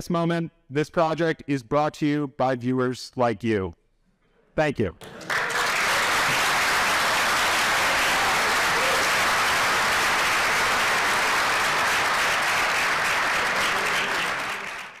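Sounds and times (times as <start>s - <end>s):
audience applauding: 5.0s - 15.0s.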